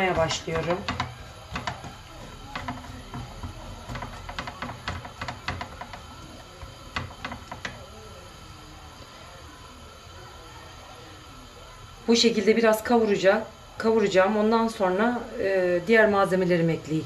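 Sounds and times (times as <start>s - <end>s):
wooden spoon scraping a pan: 0.0s - 7.8s
vegetables sizzling in oil: 0.0s - 17.0s.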